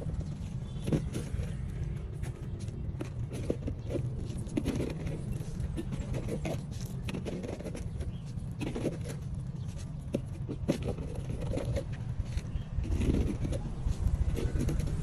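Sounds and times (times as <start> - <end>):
stones scraping and clicking: 0.0 - 15.0.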